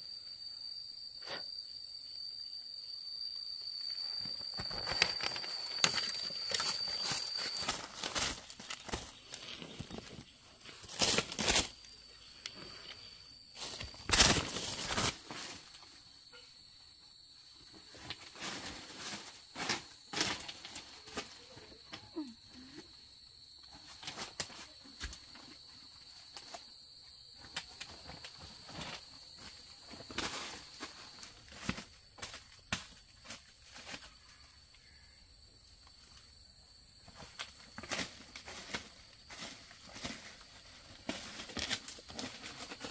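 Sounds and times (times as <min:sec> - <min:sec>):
faint high-pitched tone: 0:00.0 - 0:08.4, 0:16.2 - 0:17.0
rustling and crunching: 0:03.7 - 0:16.0, 0:27.4 - 0:34.4, 0:37.0 - 0:42.9
small crackles: 0:04.0 - 0:15.5.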